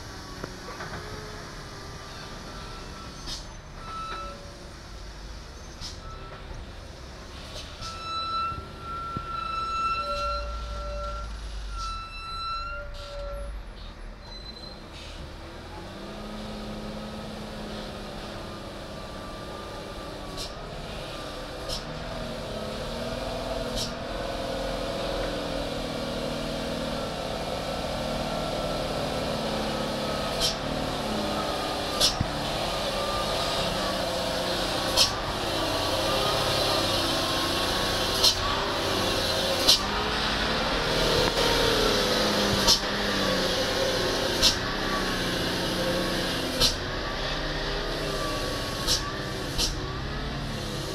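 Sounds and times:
diesel truck engine running: 0:14.8 - 0:50.9.

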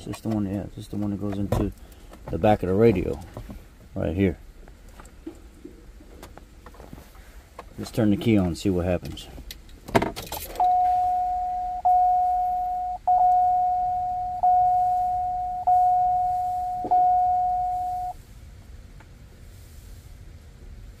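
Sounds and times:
car warning chime: 0:10.6 - 0:18.2.

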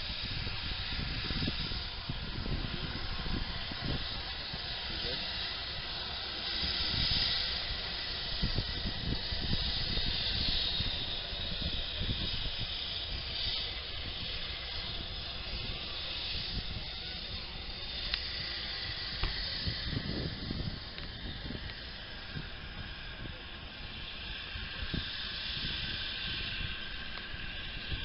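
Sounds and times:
steam locomotive hissing: 0:00.0 - 0:28.0
wind buffeting microphone: 0:00.0 - 0:28.0.

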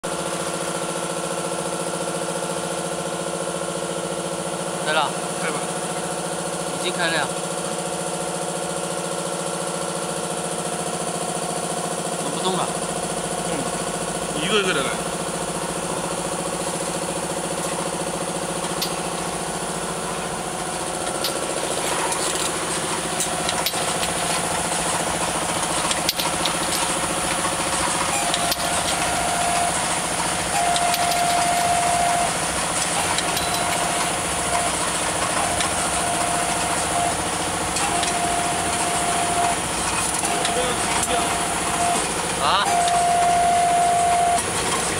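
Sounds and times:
machine humming: 0:12.1 - 0:44.9
high steady tone: 0:28.1 - 0:39.6, 0:40.2 - 0:44.4.

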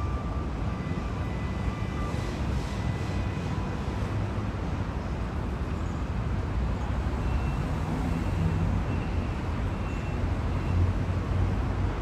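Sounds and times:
train wheels rumbling on rails: 0:00.0 - 0:07.6.

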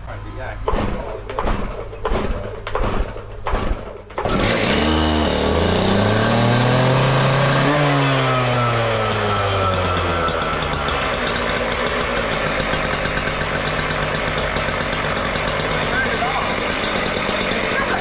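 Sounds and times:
machine engine running: 0:00.0 - 0:18.0
handling knocks and clatter: 0:00.6 - 0:04.4.

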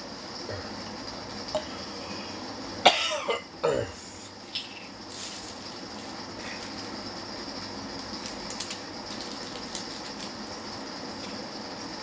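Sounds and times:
man coughing: 0:02.8 - 0:04.0
plastic crinkling: 0:08.0 - 0:10.4.

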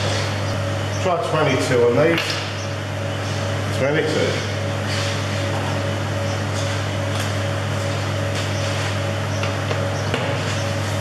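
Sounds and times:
low machine hum: 0:00.0 - 0:11.0.

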